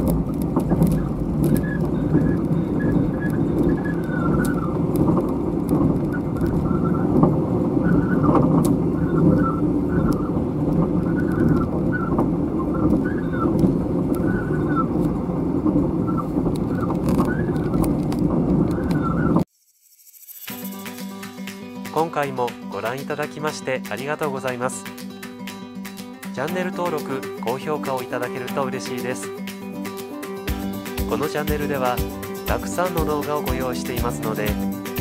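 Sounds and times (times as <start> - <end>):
train wheels rumbling on rail: 0.0 - 19.3.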